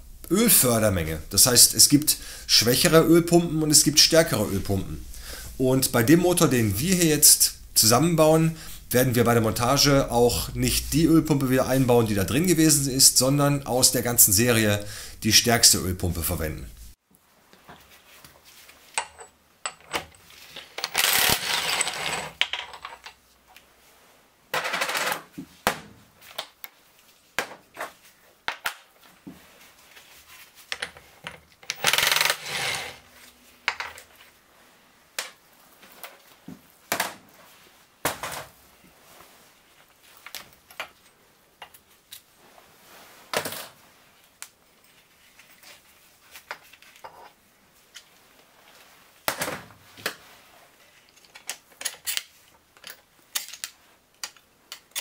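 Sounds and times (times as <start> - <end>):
impact wrench rattling: 31.7 - 32.4.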